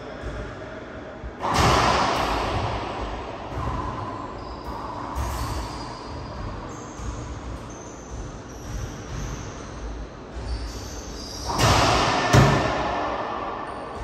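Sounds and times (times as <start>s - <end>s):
shoe squeaks: 4.1s - 11.7s
racquetball hit ringing: 11.4s - 14.0s.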